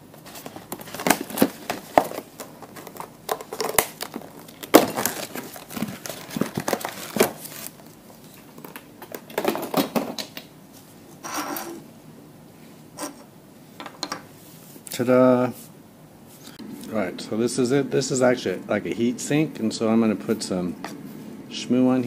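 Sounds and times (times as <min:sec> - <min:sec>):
packaging crinkling and rustling: 0:00.1 - 0:10.2
packaging ripping: 0:00.2 - 0:08.0.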